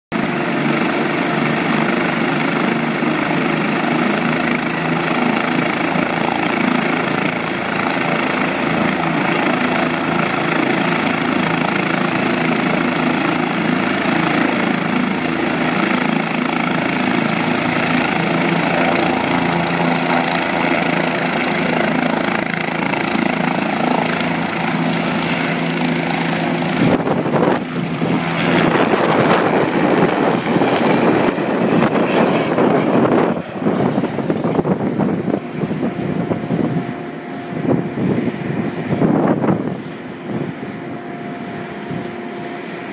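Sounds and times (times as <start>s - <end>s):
helicopter turbine whine: 0.1s - 42.9s
rotor drone: 0.1s - 42.9s
rotor downwash buffeting microphone: 16.4s - 42.9s.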